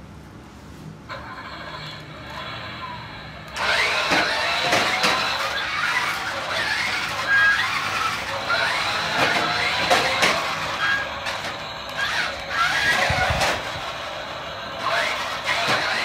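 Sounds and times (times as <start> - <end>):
toy truck motor whining: 1.1 - 16.0.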